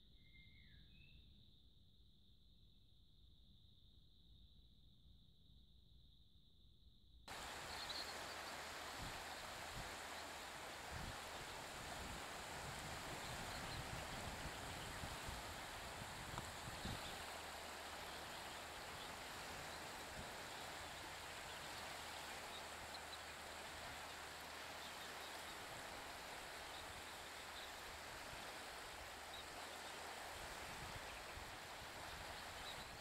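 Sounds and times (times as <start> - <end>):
outdoor background hiss: 7.3 - 33.0.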